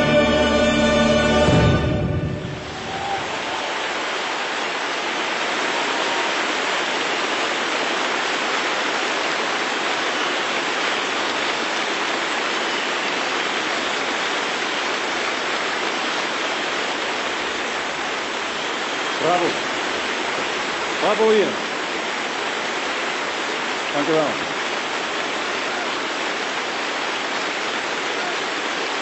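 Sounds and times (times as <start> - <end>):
orchestral music: 0.0 - 3.6
audience applauding: 2.5 - 15.6.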